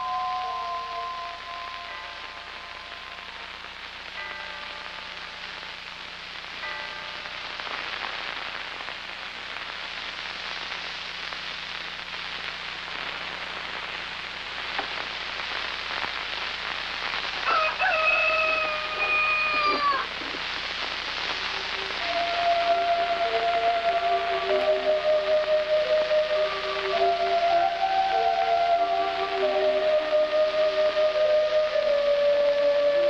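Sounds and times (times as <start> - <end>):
even hiss: 0.0 - 33.0
long animal call: 18.6 - 20.2.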